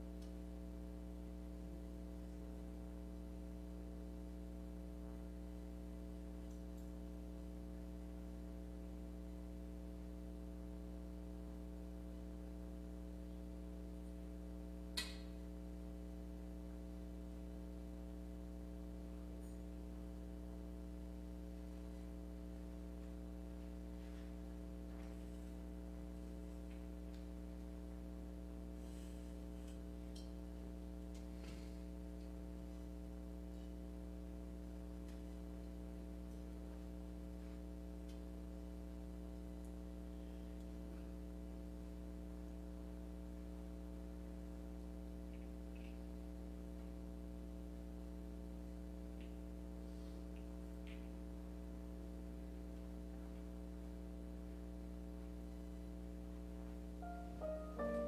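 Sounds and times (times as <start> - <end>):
electrical mains hum: 0.0 - 58.0
sharp click: 15.0 - 15.3.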